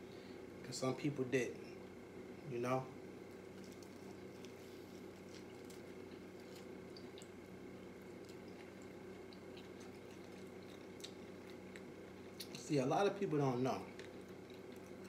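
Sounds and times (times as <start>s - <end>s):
steady low hum: 0.0s - 15.0s
man chewing food: 3.3s - 12.8s, 13.8s - 15.0s.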